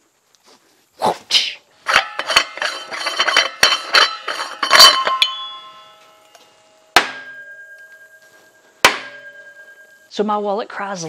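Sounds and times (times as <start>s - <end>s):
metal cap scraping on threads: 1.8s - 6.4s
ringing metal clank: 1.8s - 10.2s.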